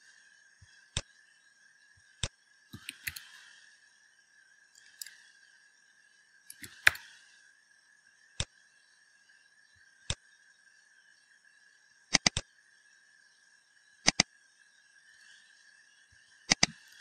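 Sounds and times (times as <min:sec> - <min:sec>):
faint high hum: 0:00.0 - 0:17.0
keyboard and mouse clicks: 0:02.8 - 0:03.3, 0:04.8 - 0:05.2, 0:06.5 - 0:07.1, 0:12.1 - 0:12.4, 0:14.0 - 0:14.3, 0:16.5 - 0:17.0.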